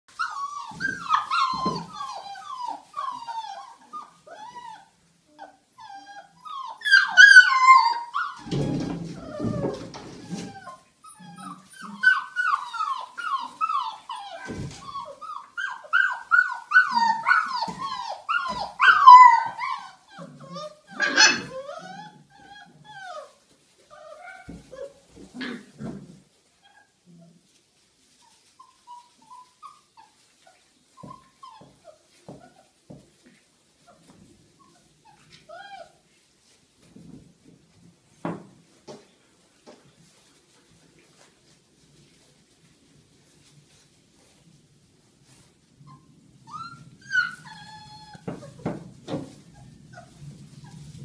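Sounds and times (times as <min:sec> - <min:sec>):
puppies yipping and whining: 0:00.1 - 0:25.9, 0:26.6 - 0:32.8, 0:33.8 - 0:36.6, 0:45.2 - 0:51.0.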